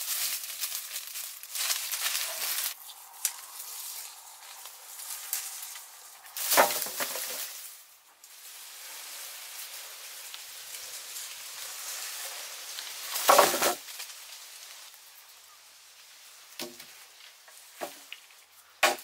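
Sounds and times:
steady high hiss: 0:00.0 - 0:18.8
wooden poles thudding on ground: 0:05.4 - 0:07.7, 0:13.1 - 0:13.9, 0:16.6 - 0:17.0, 0:17.7 - 0:19.0.

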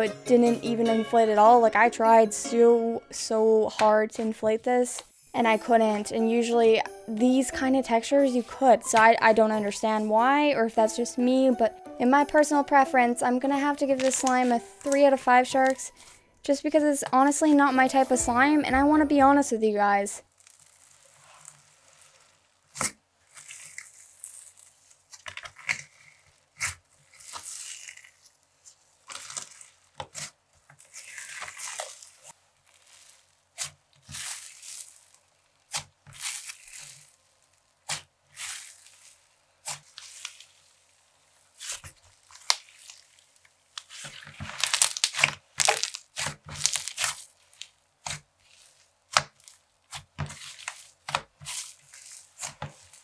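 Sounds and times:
slime crackling and popping: 0:13.3 - 0:16.1, 0:20.2 - 0:53.0.

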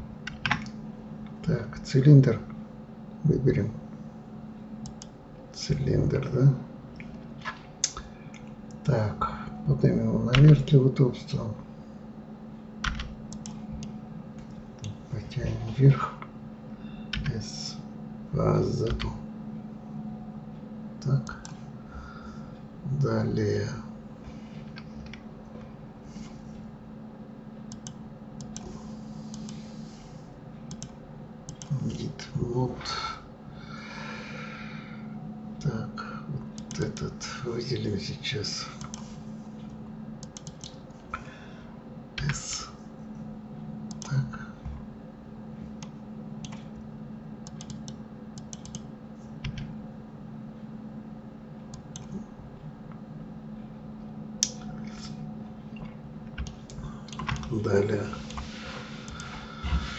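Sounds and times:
low electrical hum: 0:00.0 - 0:59.9
computer mouse clicking: 0:04.8 - 0:05.2, 0:12.8 - 0:15.0, 0:21.2 - 0:21.6, 0:27.7 - 0:29.7, 0:30.7 - 0:31.8, 0:36.6 - 0:37.0, 0:38.8 - 0:40.8, 0:43.9 - 0:44.2, 0:45.8 - 0:46.8, 0:47.4 - 0:49.7, 0:51.7 - 0:52.2, 0:55.8 - 0:57.6, 0:58.2 - 0:59.9
keyboard keys clicking: 0:12.8 - 0:15.0, 0:30.7 - 0:31.8, 0:40.2 - 0:40.8, 0:45.8 - 0:46.8, 0:47.5 - 0:48.8, 0:55.8 - 0:57.6.

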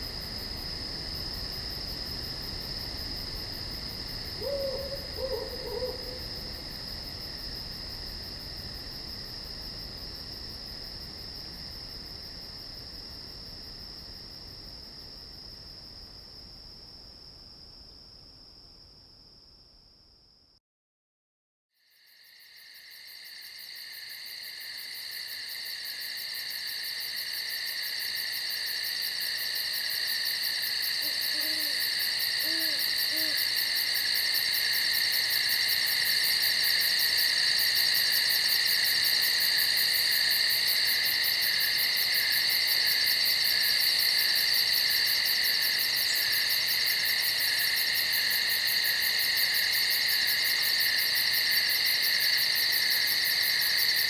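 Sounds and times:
chorus of night insects: 0:00.0 - 0:20.6, 0:21.8 - 0:54.0
owl hooting: 0:04.4 - 0:06.3, 0:31.0 - 0:31.8, 0:32.4 - 0:33.5.

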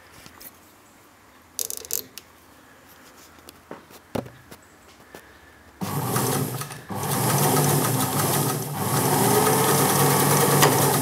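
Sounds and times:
sewing machine stitching: 0:05.8 - 0:11.0.

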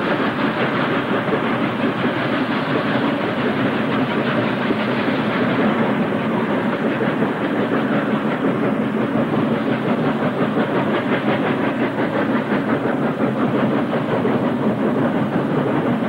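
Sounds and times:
steam hissing: 0:00.0 - 0:16.0
steam locomotive chuffing: 0:00.0 - 0:16.0.

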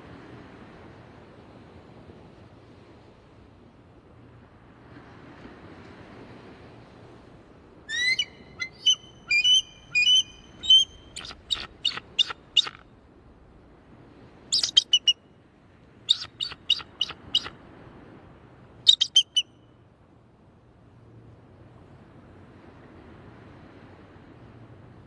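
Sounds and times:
eagle chattering calls: 0:07.9 - 0:12.8, 0:14.6 - 0:15.2, 0:16.1 - 0:17.5, 0:18.9 - 0:19.4.

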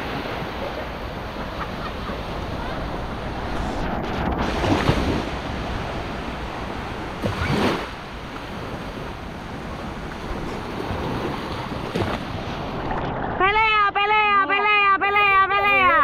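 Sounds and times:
sea surf washing onto beach: 0:00.0 - 0:13.4
wind buffeting microphone: 0:02.0 - 0:14.3.

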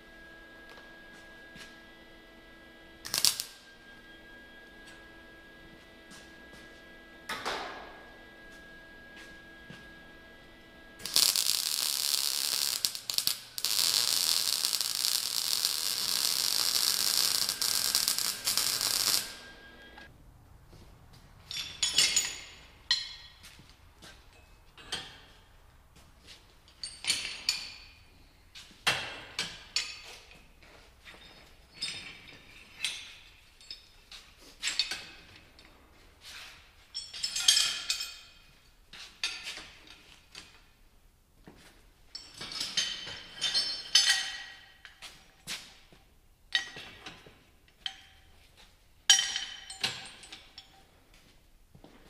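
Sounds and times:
steel chains clanking: 0:11.0 - 0:20.0, 0:21.5 - 0:23.4, 0:31.2 - 0:35.4, 0:36.9 - 0:40.5, 0:42.1 - 0:45.4, 0:49.1 - 0:50.9.

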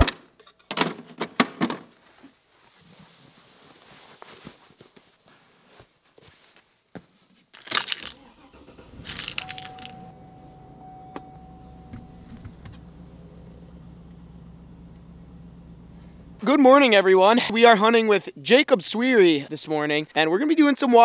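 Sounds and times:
keys jangling: 0:07.6 - 0:08.2, 0:08.9 - 0:10.1
vehicle engine starting and idling: 0:08.0 - 0:17.5.

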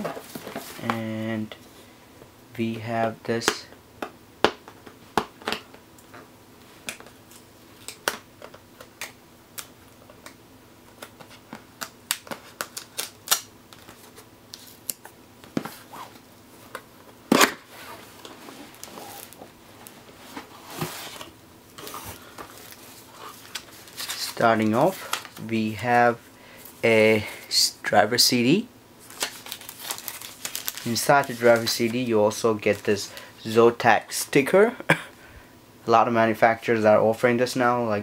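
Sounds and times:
cardboard rustling: 0:17.4 - 0:25.4, 0:29.1 - 0:32.1.

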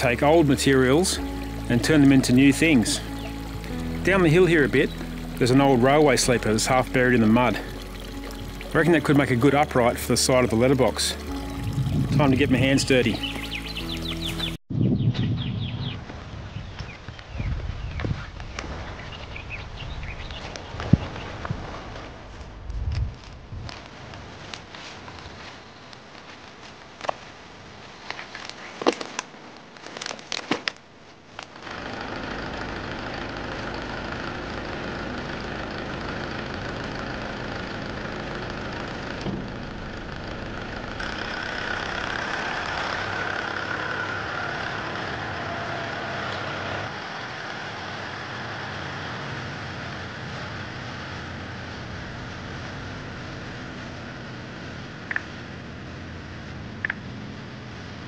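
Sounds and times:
tractor engine running: 0:31.6 - 0:48.4.

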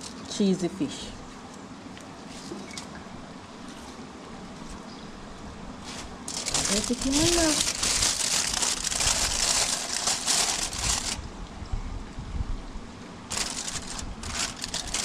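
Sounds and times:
aluminium foil crinkling: 0:05.8 - 0:11.2, 0:13.3 - 0:15.0.

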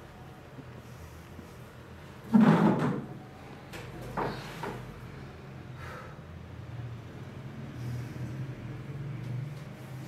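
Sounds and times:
steady low hum: 0:03.0 - 0:10.0.

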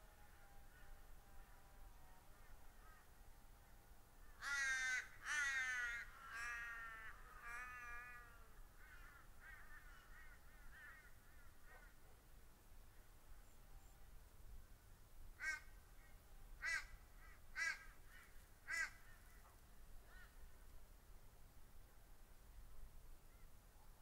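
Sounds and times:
crow cawing: 0:04.3 - 0:12.0, 0:15.4 - 0:15.7, 0:16.6 - 0:19.3.

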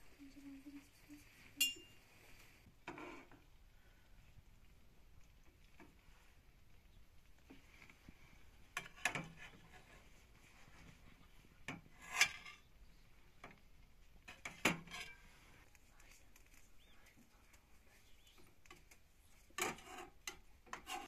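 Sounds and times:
utensils scraping metal pot: 0:11.8 - 0:12.7, 0:19.5 - 0:21.0.

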